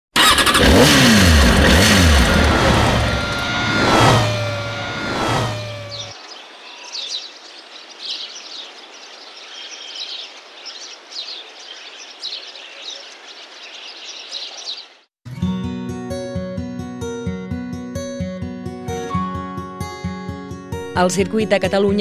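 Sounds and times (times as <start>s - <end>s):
car engine passing fast: 0.2s - 6.2s
small birds chirping: 4.2s - 15.1s
steady outdoor hiss: 6.1s - 15.1s.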